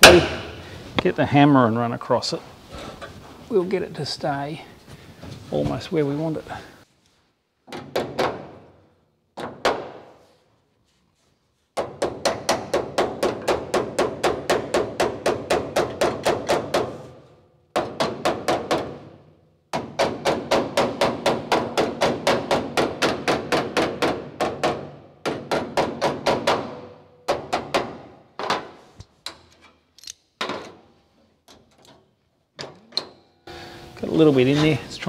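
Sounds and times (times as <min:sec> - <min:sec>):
hammer striking steel panel: 0:00.0 - 0:00.6, 0:11.8 - 0:17.2, 0:17.8 - 0:19.2, 0:19.8 - 0:28.8.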